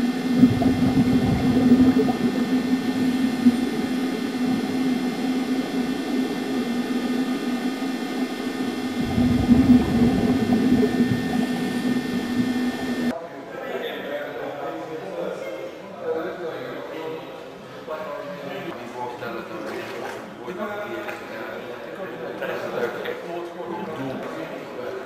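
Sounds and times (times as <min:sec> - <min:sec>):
diver exhale bubbles rumbling: 0:00.0 - 0:13.1
underwater hum and hiss: 0:00.0 - 0:13.1.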